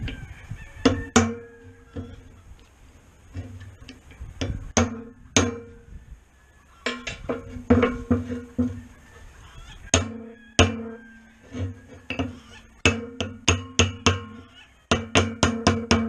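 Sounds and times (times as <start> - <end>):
hammer striking metal punch: 4.8 - 5.8, 12.1 - 14.3, 14.9 - 16.0.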